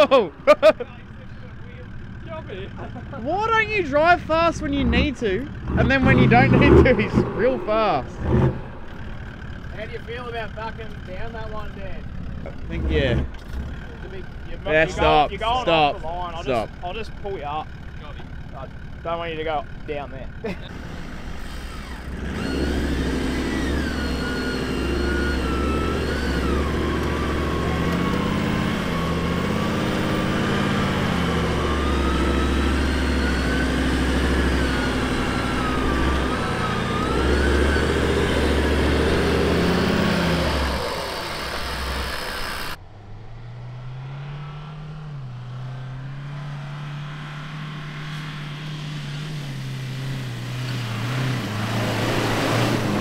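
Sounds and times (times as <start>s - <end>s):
vehicle engine revving: 0.0s - 53.0s
wavering whine: 31.2s - 49.8s.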